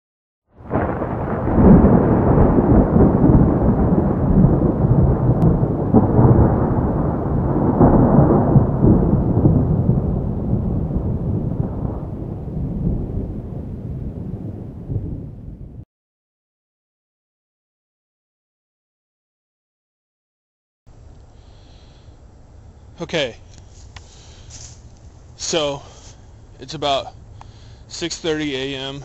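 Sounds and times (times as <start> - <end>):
rolling thunder: 0.6 - 15.8.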